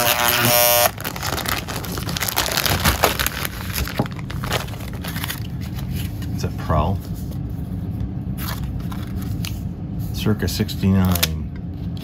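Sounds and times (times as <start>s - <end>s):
plastic bag crinkling: 0.8s - 5.9s.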